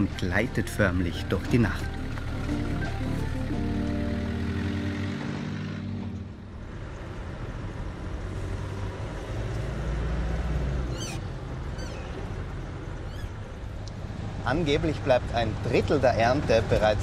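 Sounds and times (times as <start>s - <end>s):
background music: 0.0s - 6.7s
car engine and road noise: 0.0s - 17.0s.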